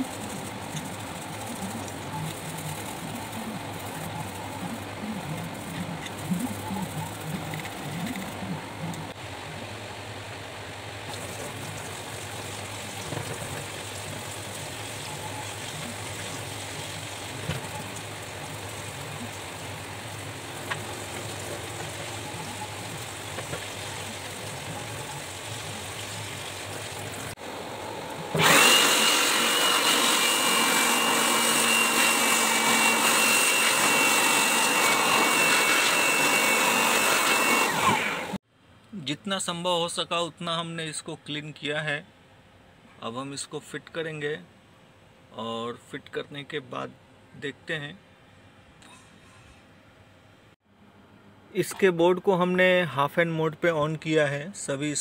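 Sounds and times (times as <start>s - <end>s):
scrubbing and rinsing at sink: 0.0s - 8.6s, 11.1s - 27.4s
electric air blower whining: 27.5s - 38.4s.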